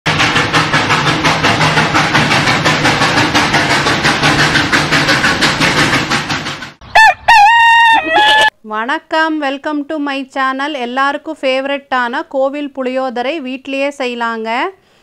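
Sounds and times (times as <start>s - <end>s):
steam locomotive chuffing: 0.1s - 8.5s
rooster crowing: 6.9s - 8.5s.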